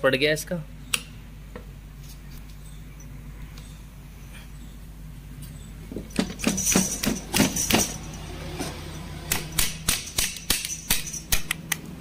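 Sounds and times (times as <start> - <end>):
manual gearbox clacks: 6.1 - 8.2.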